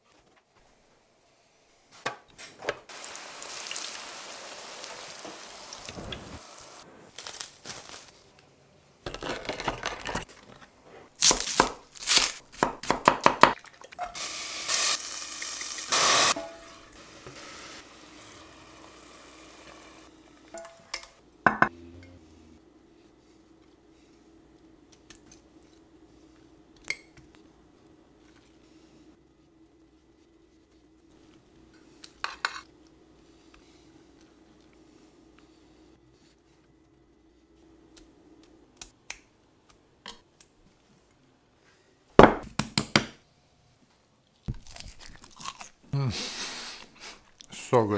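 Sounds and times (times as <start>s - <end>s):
oil sizzling in a pan: 2.9s - 6.8s, 14.0s - 20.9s.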